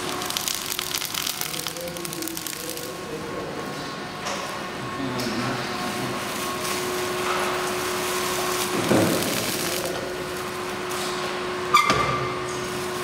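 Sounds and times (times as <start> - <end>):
plastic film rustling and crinkling: 0.0 - 3.1, 5.8 - 10.8
machine steady hum: 0.0 - 13.0.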